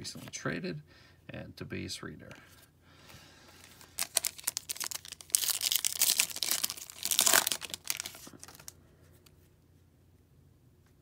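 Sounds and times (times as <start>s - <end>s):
foil wrapper tearing and crinkling: 3.8s - 8.7s.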